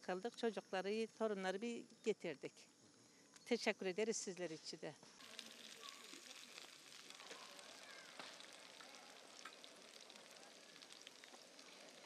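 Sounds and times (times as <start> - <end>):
potatoes sizzling in a pan: 5.1 - 12.0.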